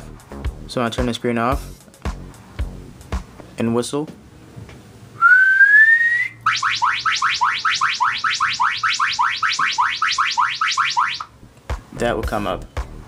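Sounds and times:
person whistling: 5.2s - 6.4s
electronic chirping alarm: 6.4s - 11.4s.

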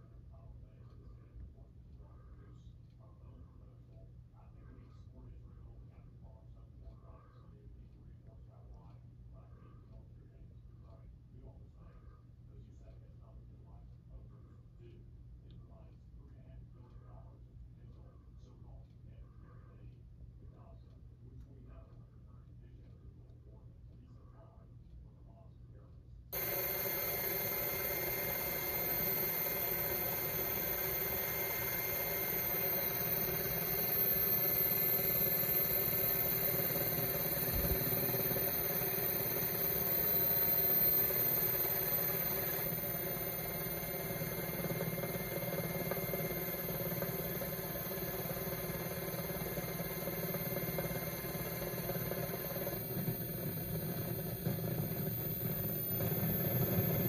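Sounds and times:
high-pitched whine: 26.4s - 57.0s
mechanical drone: 26.4s - 57.0s.

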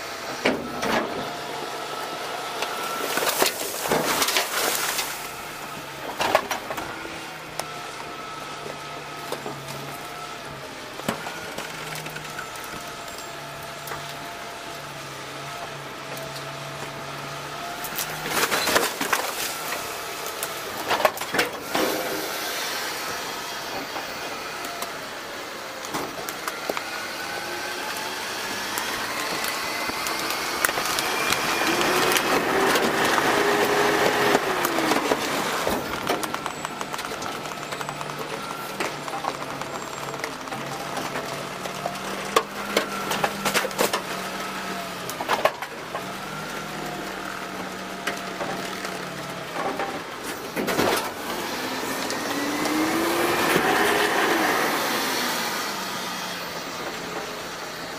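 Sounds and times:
hydraulics whining: 0.0s - 57.9s
truck engine running: 0.0s - 57.9s
trash crashing into truck hopper: 3.0s - 5.4s.

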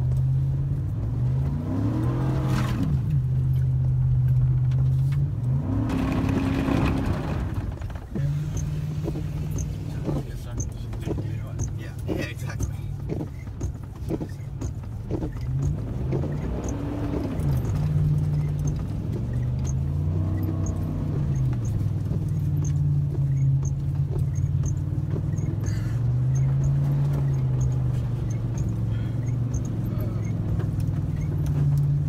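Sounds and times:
truck engine revving: 0.0s - 32.0s.

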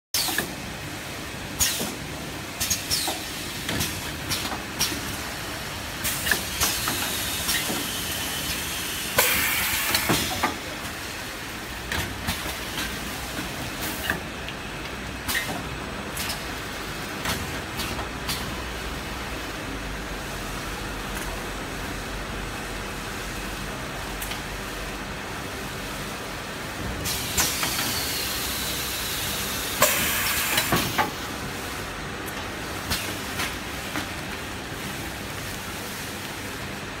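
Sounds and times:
machine hum with clicks: 0.2s - 0.7s, 5.9s - 11.0s, 11.9s - 18.6s, 21.0s - 21.4s, 24.1s - 24.6s, 27.0s - 28.4s, 29.3s - 31.3s, 32.2s - 36.7s
air hiss bursts: 6.0s - 10.5s, 27.0s - 31.0s.

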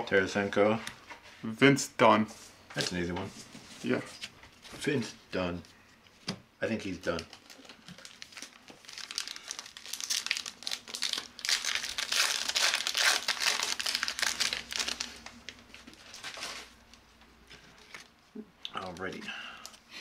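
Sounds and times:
foil wrapper tearing and crinkling: 7.2s - 16.7s.

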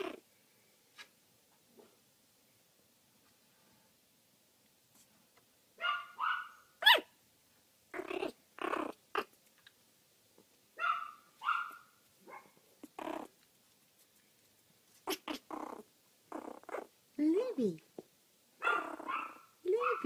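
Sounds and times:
puppy growling: 0.0s - 0.3s, 7.9s - 9.4s, 12.8s - 13.4s, 15.0s - 17.0s, 18.6s - 20.0s
puppy yipping and whining: 5.8s - 7.2s, 10.8s - 13.3s, 15.0s - 16.9s, 18.6s - 20.0s.

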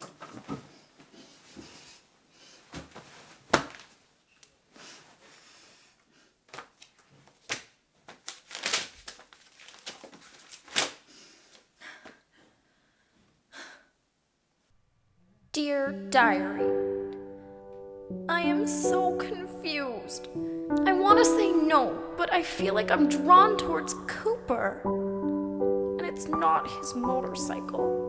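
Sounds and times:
person shifting on bed: 0.0s - 1.9s
notebook pages rustling: 6.5s - 11.0s.

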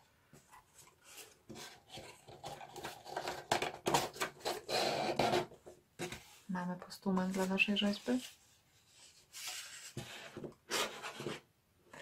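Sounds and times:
cardboard scraping and rubbing: 7.3s - 12.0s.

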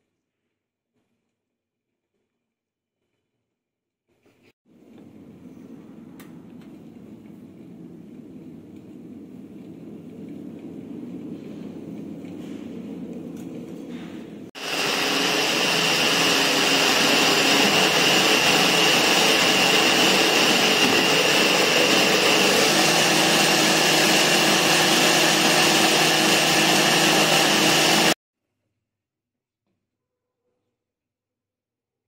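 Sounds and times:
electric food chopper whining: 14.6s - 28.2s.

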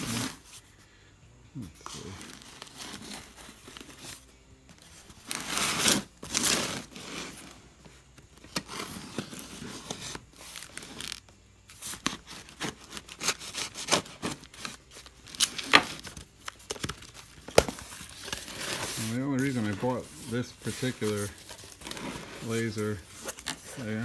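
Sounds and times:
knife slicing through packing tape: 12.0s - 16.0s.

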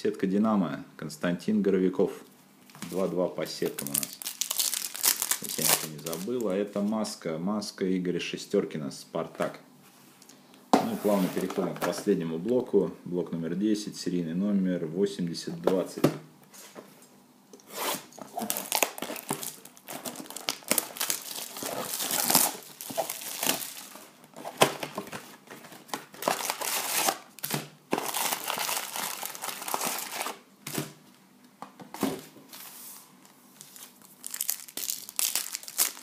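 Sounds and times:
foil packs crinkling and rustling: 3.7s - 6.5s, 18.3s - 30.4s, 33.6s - 36.0s
foil pack tearing open: 3.8s - 6.3s, 18.4s - 24.0s, 26.2s - 30.4s, 34.2s - 36.0s.

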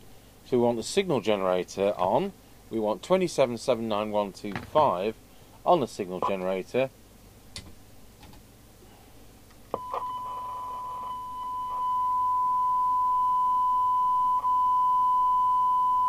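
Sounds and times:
steady test tone: 6.1s - 6.7s, 9.8s - 16.0s.

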